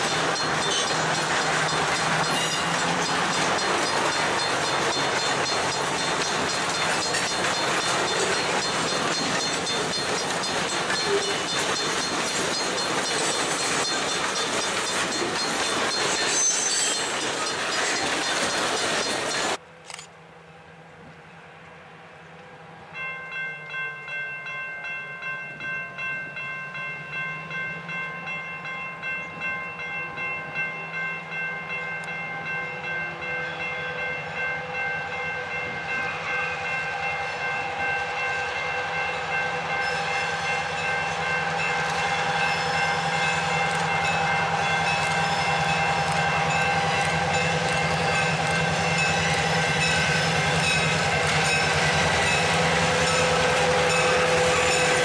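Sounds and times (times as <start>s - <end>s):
diesel locomotive engines: 0.0s - 55.0s
train horn: 32.6s - 55.0s.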